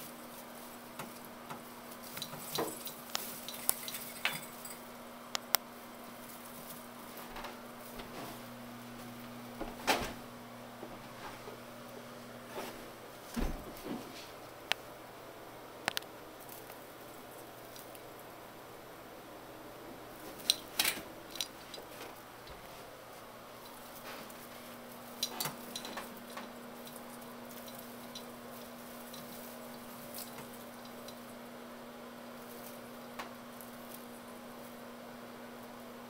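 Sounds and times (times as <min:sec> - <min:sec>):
ornaments clicking and rattling: 0:00.0 - 0:05.6, 0:20.4 - 0:21.9, 0:24.6 - 0:31.3
room hiss: 0:00.0 - 0:36.0.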